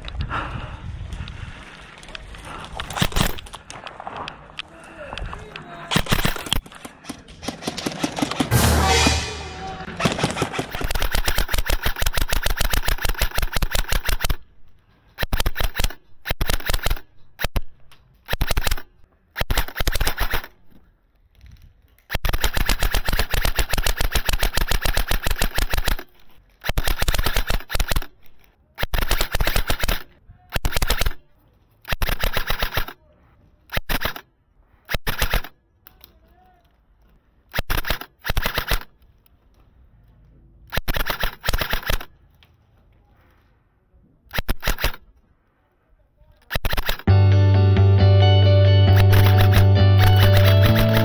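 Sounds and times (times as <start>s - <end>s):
airsoft rifle firing bursts: 5.9s - 6.7s, 9.9s - 14.4s, 15.2s - 17.7s, 18.3s - 20.5s, 22.1s - 28.2s, 28.8s - 31.2s, 31.9s - 33.0s, 34.9s - 35.6s, 37.5s - 38.9s, 40.7s - 42.1s, 46.5s - 47.1s, 48.9s - 51.0s.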